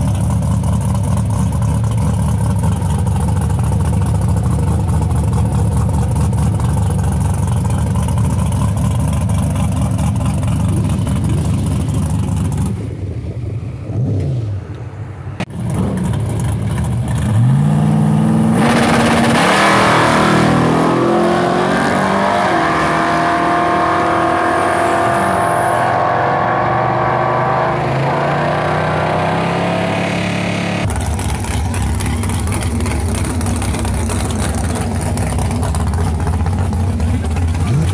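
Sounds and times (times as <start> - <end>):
truck engine revving: 15.4 - 37.9.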